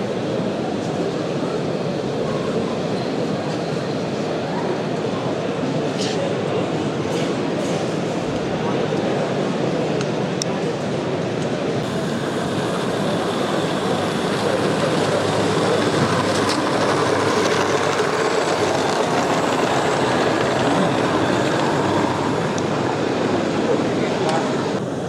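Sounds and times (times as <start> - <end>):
model train wheels rumbling: 11.4 - 25.0.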